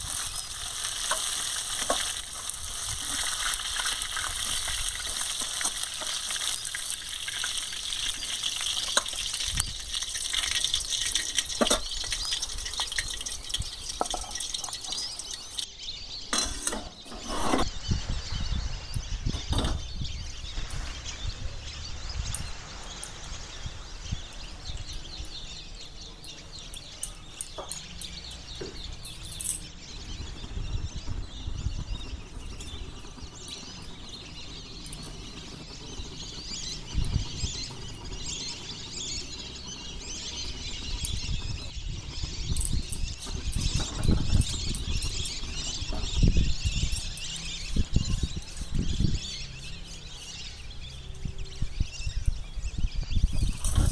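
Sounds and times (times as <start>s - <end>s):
small birds chirping: 0.0s - 53.9s.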